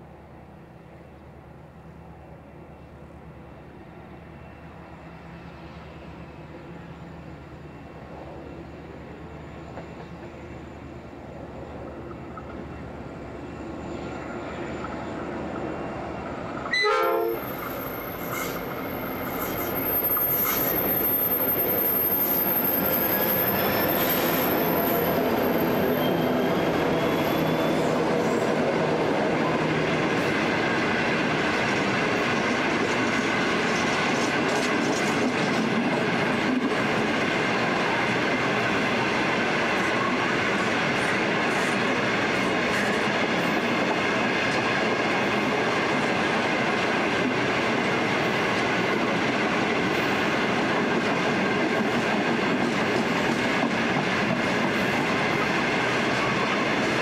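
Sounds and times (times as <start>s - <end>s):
diesel locomotives passing: 0.0s - 57.0s
train horn blast: 16.7s - 17.6s.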